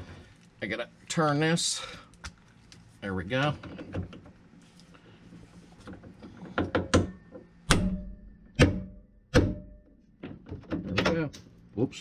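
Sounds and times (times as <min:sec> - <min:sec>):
hammer striking impact driver: 0:06.7 - 0:09.8.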